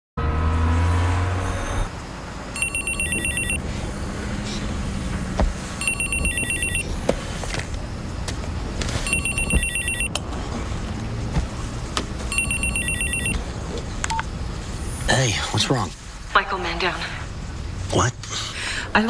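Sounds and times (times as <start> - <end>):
phone trilling ringtone: 2.6 - 3.6, 5.8 - 6.8, 9.1 - 10.1, 12.3 - 13.4.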